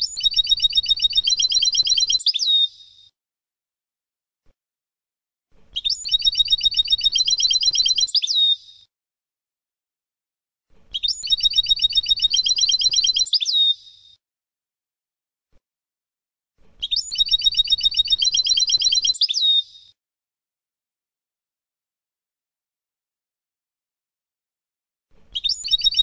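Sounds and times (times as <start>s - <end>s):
goldfinch song trill: 11.0s - 14.0s, 16.8s - 19.9s, 25.4s - 26.0s.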